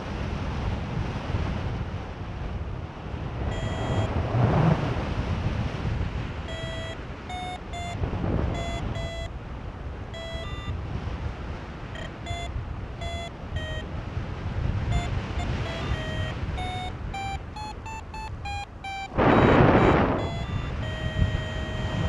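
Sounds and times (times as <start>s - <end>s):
wind rush on microphone: 0.0s - 22.0s
variometer short beeps: 3.5s - 4.2s, 6.4s - 9.4s, 10.1s - 10.8s, 11.9s - 13.9s, 14.8s - 22.0s.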